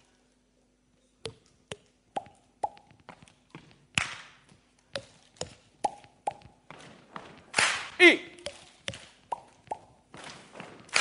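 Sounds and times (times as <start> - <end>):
hollow pitched mouth pops: 1.2 - 3.0, 5.0 - 6.6, 8.4 - 9.9
crisp hand clap: 7.5 - 8.0, 10.8 - 11.0.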